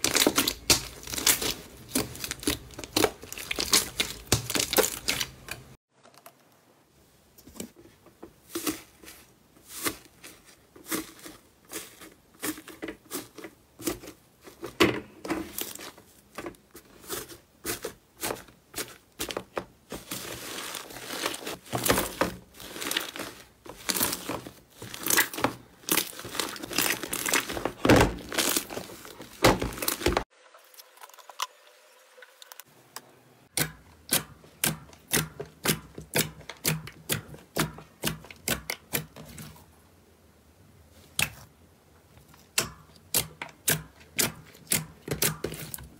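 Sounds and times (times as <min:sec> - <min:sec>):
slime crackling and popping: 0:00.0 - 0:05.7, 0:20.4 - 0:30.2.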